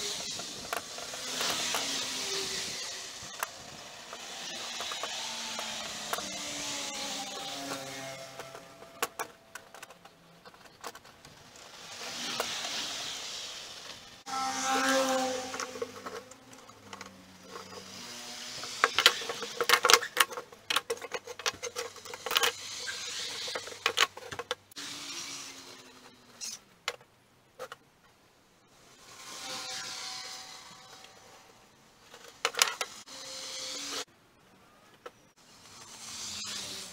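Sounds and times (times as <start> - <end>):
small power tool motor: 0.0 - 9.3, 11.5 - 20.2, 21.6 - 23.9, 24.7 - 26.5, 29.0 - 31.5, 32.8 - 34.1, 35.4 - 36.9.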